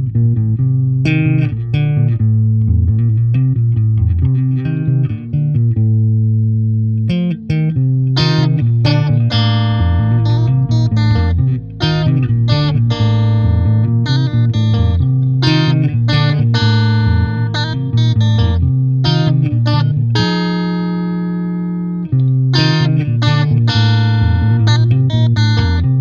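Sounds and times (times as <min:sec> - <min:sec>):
plucked notes over bass line: 0:00.0 - 0:26.0.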